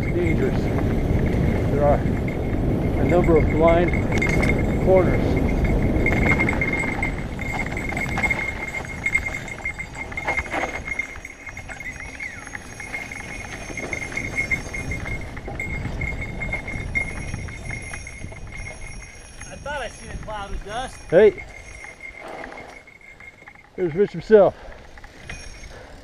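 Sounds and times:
wind rushing: 0.0 - 10.3
bike rattling over bumps: 0.0 - 26.0
tyres on dirt: 0.0 - 26.0.

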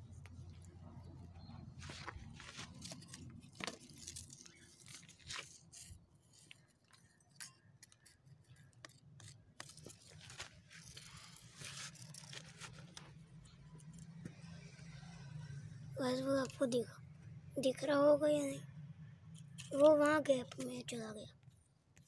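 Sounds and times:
scuffs on gritty dirt floor: 1.7 - 3.8.

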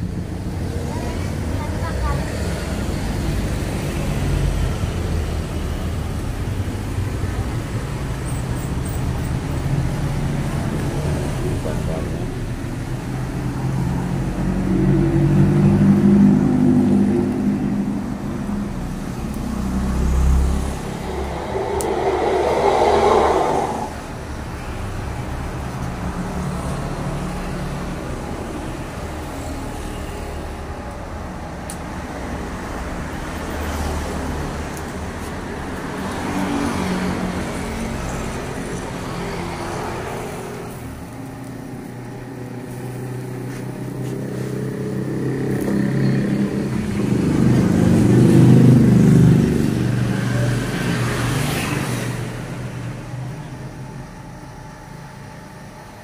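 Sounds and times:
vehicles passing on road: 0.0 - 56.0
steady low rumble: 18.4 - 24.7.

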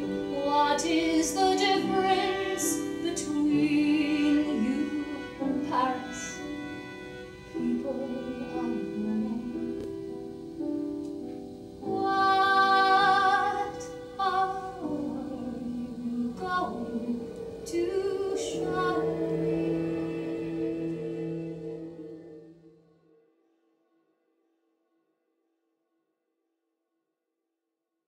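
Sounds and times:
woman singing long held notes: 0.0 - 6.7, 7.4 - 10.0, 11.8 - 22.8
sustained violin accompaniment: 0.0 - 22.7.

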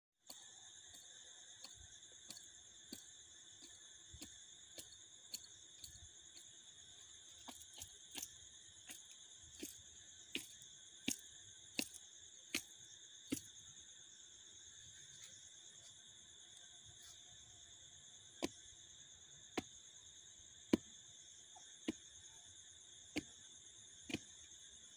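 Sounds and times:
insects trilling: 0.2 - 24.9.

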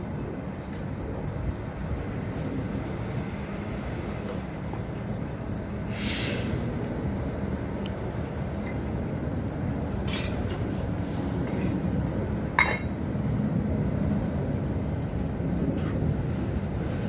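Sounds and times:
low rumble of vehicles: 0.0 - 17.0
metal pots and lids clinking: 12.6 - 12.9.

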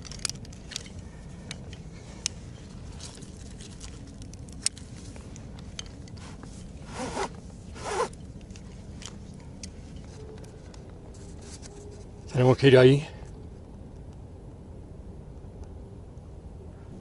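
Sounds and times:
climbing gear clicks: 0.0 - 11.0.

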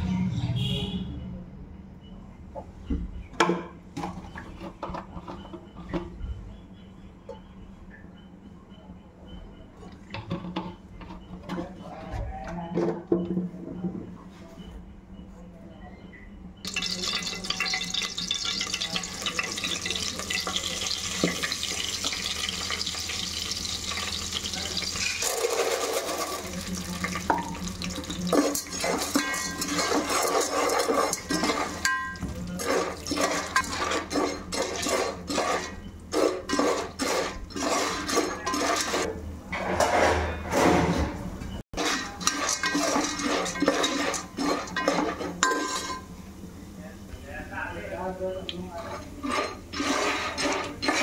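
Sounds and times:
hot oil sizzling in a pot: 16.6 - 35.7, 41.8 - 46.1
metal ladle scraping a pot: 16.7 - 41.1, 41.8 - 46.1, 48.7 - 51.0.

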